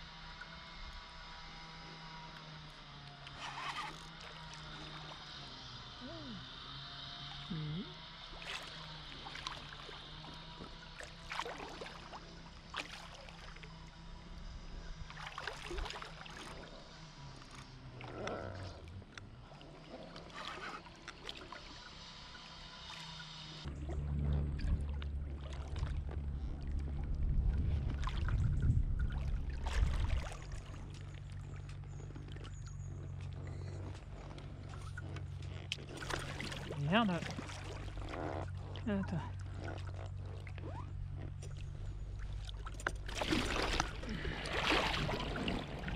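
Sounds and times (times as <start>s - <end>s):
fish splashing in water: 8.3s - 14.0s, 15.1s - 18.1s, 27.5s - 31.6s, 35.8s - 45.9s
heavy low rumble: 23.7s - 45.9s.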